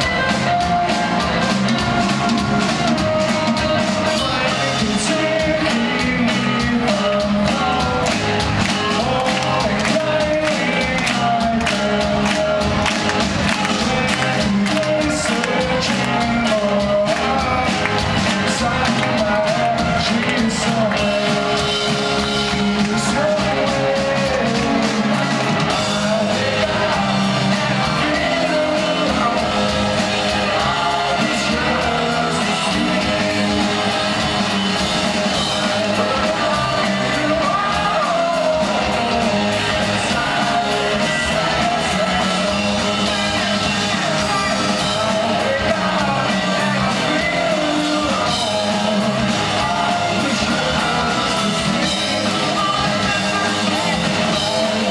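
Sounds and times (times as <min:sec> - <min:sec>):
live rock band playing: 0:00.0 - 0:54.9.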